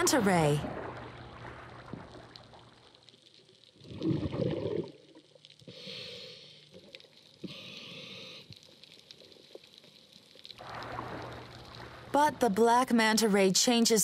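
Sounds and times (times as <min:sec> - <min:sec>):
exhaled bubbles rushing: 0:00.4 - 0:02.9, 0:03.8 - 0:05.2, 0:10.6 - 0:12.2
regulator inhalation hiss: 0:07.4 - 0:08.5.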